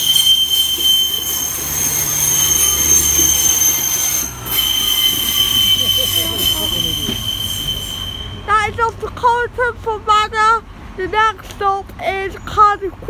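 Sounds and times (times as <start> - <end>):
wheel flange squeal: 0.0 - 8.7.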